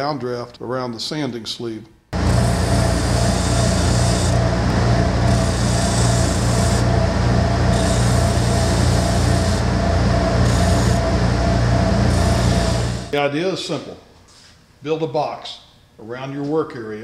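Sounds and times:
dust collector air hiss: 2.2s - 13.2s
sander motor hum: 2.2s - 13.2s.

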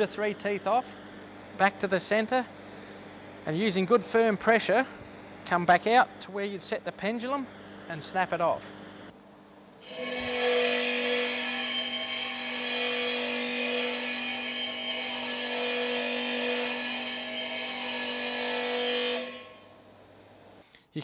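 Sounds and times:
grinder motor humming: 9.8s - 19.3s.

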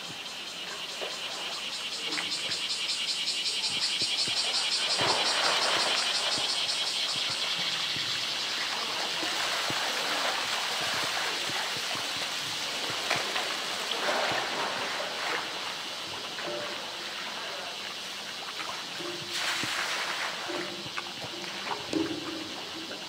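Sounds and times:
water sloshing and splashing: 0.6s - 2.8s, 3.5s - 23.0s
water running out of tank: 7.4s - 23.0s.

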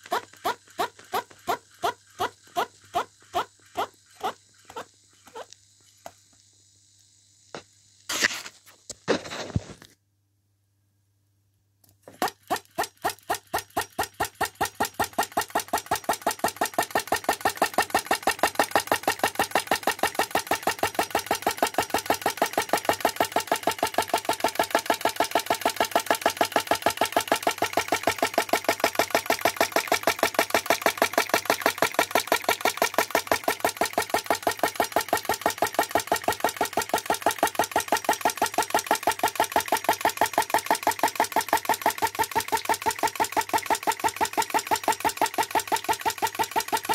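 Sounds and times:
model engine knocking: 0.0s - 4.8s, 12.1s - 46.9s.

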